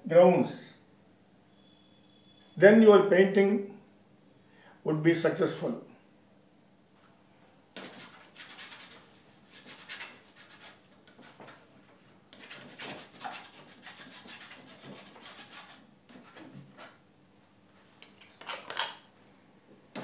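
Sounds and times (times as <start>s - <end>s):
palette knife scraping paint: 7.8s - 11.7s, 12.3s - 17.0s.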